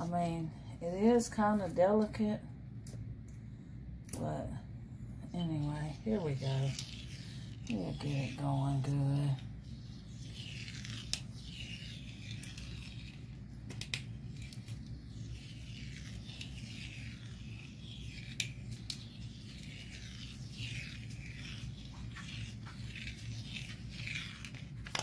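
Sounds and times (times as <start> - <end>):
steady low hum: 0.0 - 25.0
vinyl peeling off sheet: 9.8 - 25.0.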